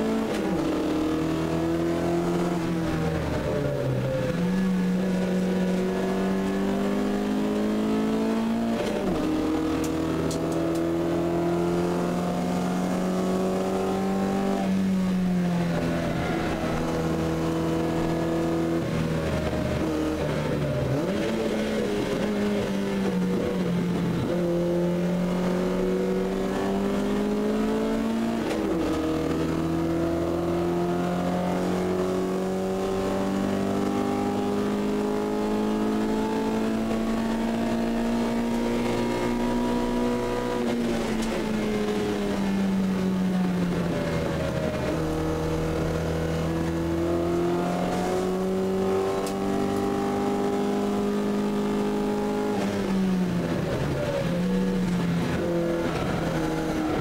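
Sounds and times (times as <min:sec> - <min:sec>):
car engine under load: 0:00.0 - 0:57.0.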